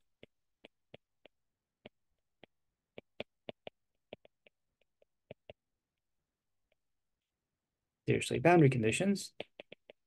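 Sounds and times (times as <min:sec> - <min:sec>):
stylus tapping on tablet screen: 0:00.0 - 0:06.9, 0:09.3 - 0:10.0.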